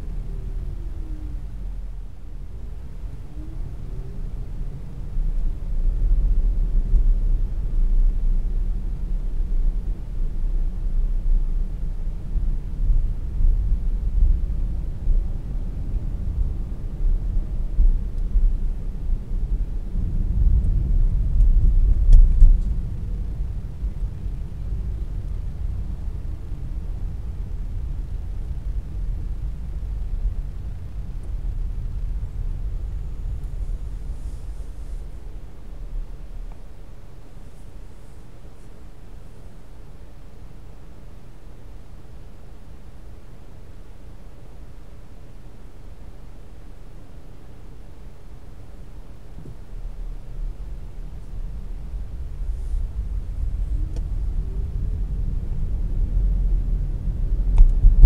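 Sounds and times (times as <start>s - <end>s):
car interior rumble: 0.0s - 39.8s, 48.8s - 58.0s
car driving rumble: 49.3s - 58.0s.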